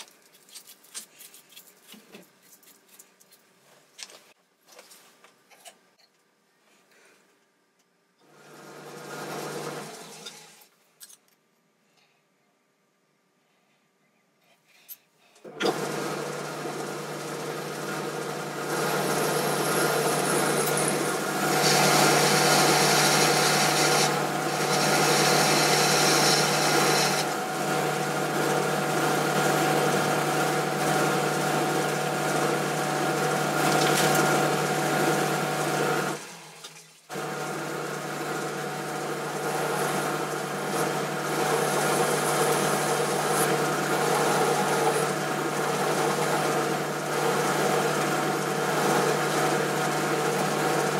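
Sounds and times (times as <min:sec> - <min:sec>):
lathe motor running: 0:08.3 - 0:10.5, 0:15.6 - 0:36.5, 0:37.1 - 0:50.9
lathe tool cutting hiss: 0:17.8 - 0:29.0, 0:38.4 - 0:50.9.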